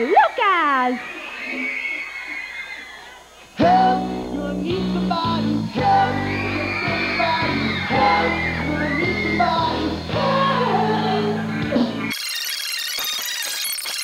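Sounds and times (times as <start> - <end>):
man singing: 3.6 - 11.4.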